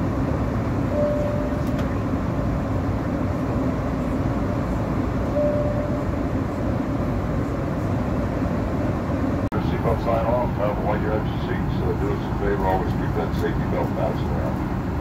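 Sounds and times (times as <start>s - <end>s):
airliner cabin rumble: 0.0s - 15.0s
short thin tone: 0.9s - 1.8s, 5.4s - 6.1s.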